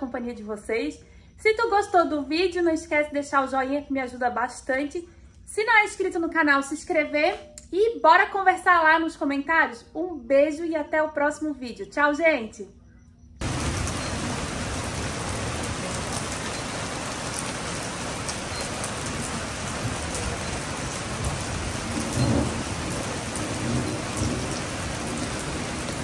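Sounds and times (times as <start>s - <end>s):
rain on a wooden deck: 13.4s - 26.0s.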